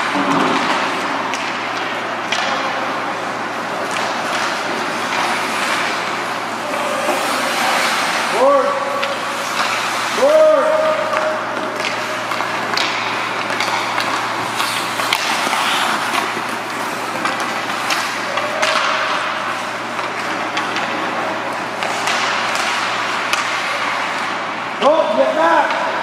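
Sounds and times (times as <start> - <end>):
skates scraping ice: 0.0 - 25.0
steady low hum: 0.0 - 25.2
hockey sticks and puck clacking: 0.0 - 26.0.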